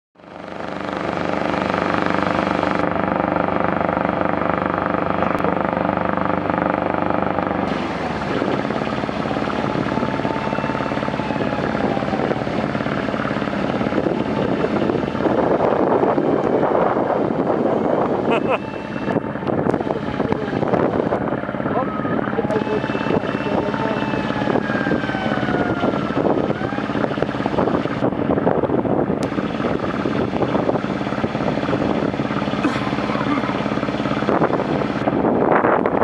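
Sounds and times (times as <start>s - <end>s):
boat motoring past: 0.2s - 28.1s, 29.2s - 35.1s
boat engine running: 0.2s - 36.0s
rushing water: 7.6s - 16.2s, 29.3s - 35.0s.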